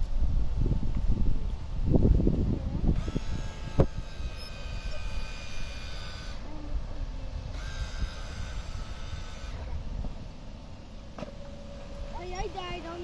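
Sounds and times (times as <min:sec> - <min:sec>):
wind noise on microphone: 0:00.0 - 0:13.0
small electric motor whining: 0:01.5 - 0:13.0.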